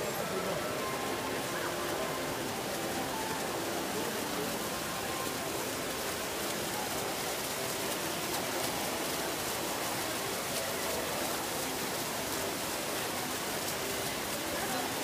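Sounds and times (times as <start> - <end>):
faint voices of people: 0.0 - 15.0
running water rushing: 0.0 - 15.0.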